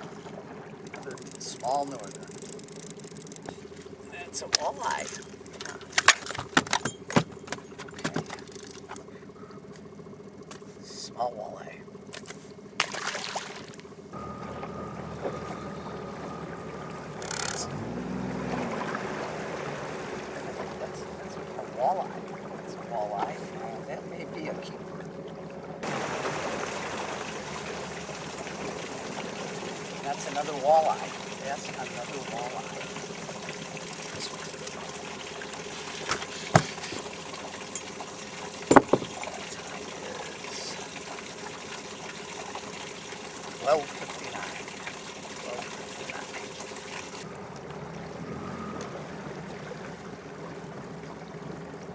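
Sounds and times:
faint hum: 0:00.0 - 0:51.9
outboard motor running: 0:00.0 - 0:51.9
water noise: 0:00.0 - 0:51.9
wind: 0:00.0 - 0:51.9
sharp knocks in boat: 0:04.5 - 0:09.1, 0:12.1 - 0:17.6, 0:35.5 - 0:39.4.

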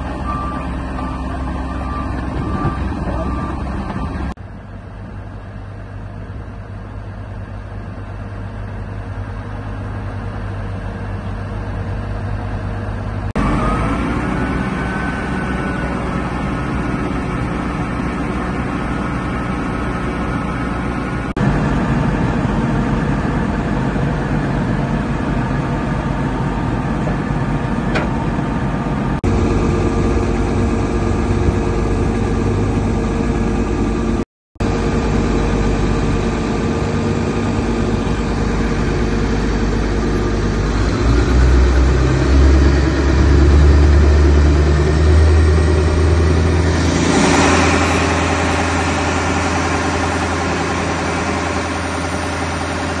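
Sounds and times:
diesel engines idling: 0:00.0 - 0:53.0
rushing noise: 0:13.4 - 0:53.0.

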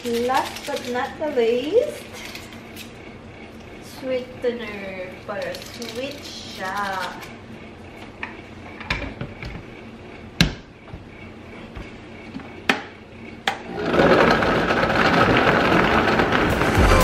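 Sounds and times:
blender motor blending: 0:13.7 - 0:16.8.

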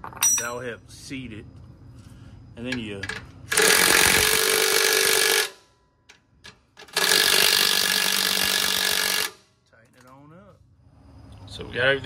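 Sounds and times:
cordless electric ratchet whining: 0:03.5 - 0:05.6, 0:06.8 - 0:09.4.

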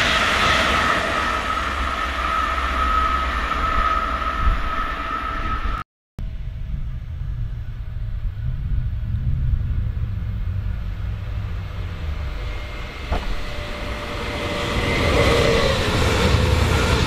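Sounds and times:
low rumble: 0:00.0 - 0:17.0
electric train running: 0:10.4 - 0:17.0.

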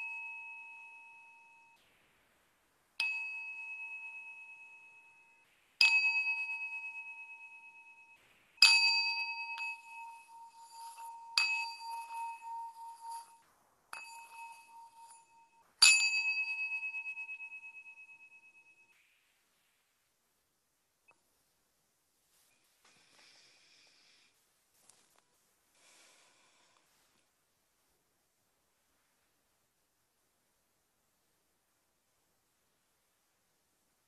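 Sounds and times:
singing bowl ringing: 0:00.0 - 0:01.8, 0:03.0 - 0:19.0
faint scratchy sound: 0:06.4 - 0:34.0.

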